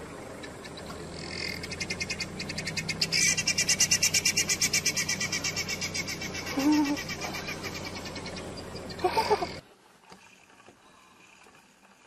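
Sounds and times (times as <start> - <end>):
rapid pulsing animal call: 0.5 - 9.6.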